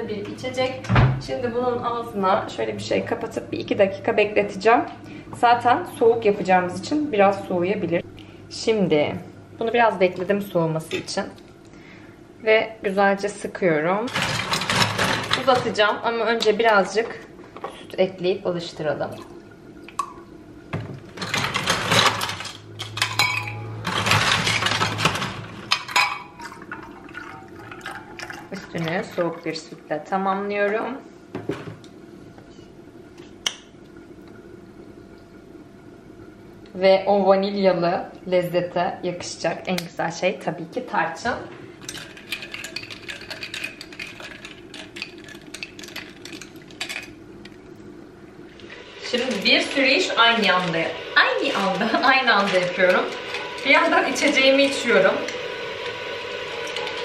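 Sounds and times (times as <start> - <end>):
milk pouring: 26.4 - 29.5
ice cubes clinking in a glass: 41.8 - 47.2.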